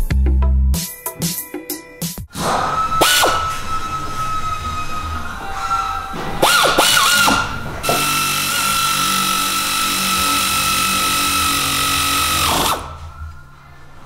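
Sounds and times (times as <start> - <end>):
power ratchet whirring: 2.3 - 13.2.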